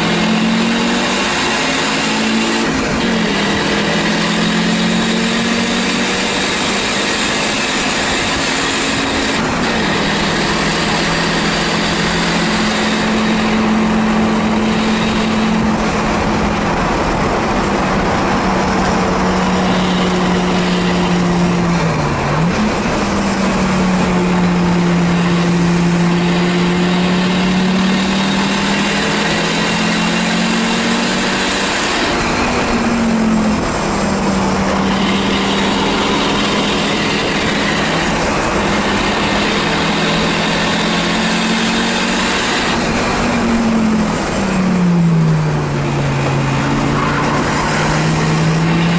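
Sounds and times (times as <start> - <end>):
race car engine running hard: 0.0 - 48.9
road and wind noise: 0.0 - 48.9.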